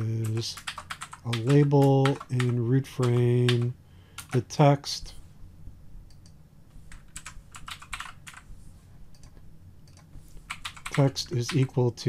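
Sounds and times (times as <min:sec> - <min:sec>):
low steady hum: 0:00.0 - 0:12.0
computer keyboard keystrokes: 0:00.3 - 0:03.6, 0:04.2 - 0:04.4, 0:06.1 - 0:08.4, 0:09.1 - 0:11.7.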